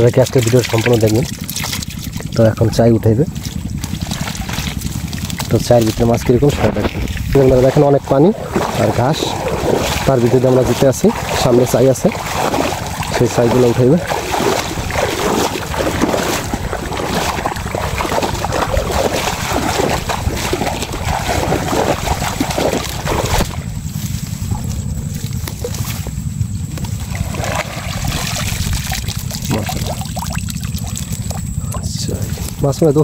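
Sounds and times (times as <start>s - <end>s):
water trickling: 0.0s - 23.7s, 27.0s - 32.1s
water sloshing: 0.0s - 32.7s
grass rustling: 0.0s - 33.0s
wind rumble on microphone: 0.0s - 33.0s
fish trap knocking in water: 6.5s - 23.6s.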